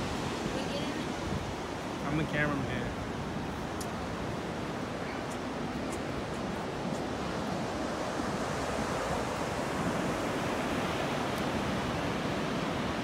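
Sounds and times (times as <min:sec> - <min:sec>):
ocean waves breaking: 0:00.0 - 0:13.0.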